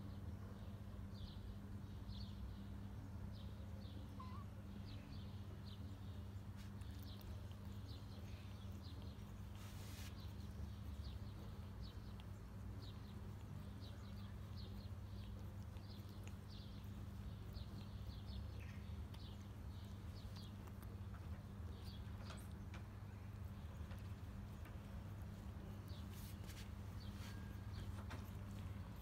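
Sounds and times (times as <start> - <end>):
cat licking wet clicks: 6.6 - 26.0.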